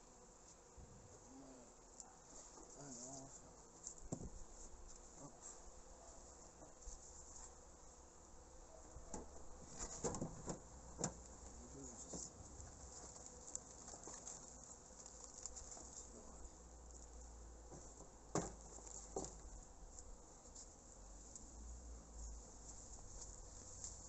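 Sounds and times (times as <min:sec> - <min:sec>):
light knocks on hive roof: 0:04.1 - 0:04.4, 0:09.1 - 0:11.2, 0:17.7 - 0:19.4.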